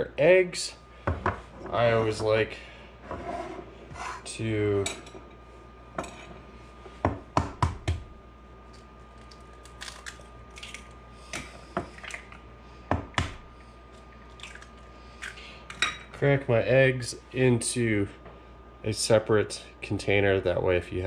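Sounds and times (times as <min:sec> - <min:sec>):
eggs cracking against a bowl: 0:08.7 - 0:13.3, 0:13.9 - 0:15.4.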